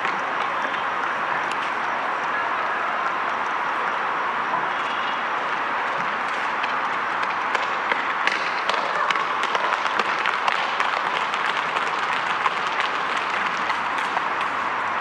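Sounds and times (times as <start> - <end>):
audience applauding: 6.3 - 14.6.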